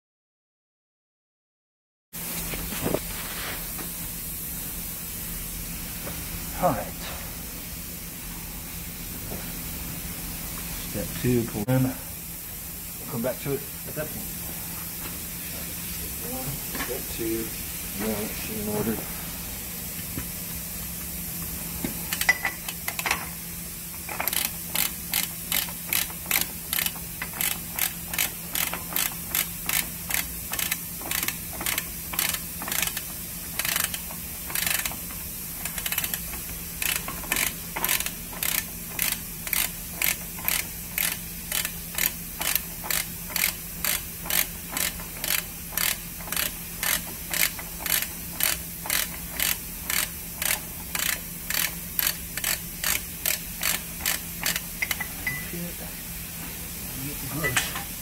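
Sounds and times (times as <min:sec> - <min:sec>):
steady low hum: 0:02.2 - 0:58.0
hand ratchet clicking: 0:22.1 - 0:23.3, 0:24.0 - 0:55.1
knocks of ratchet being fitted: 0:22.1 - 0:23.3, 0:24.0 - 0:55.4.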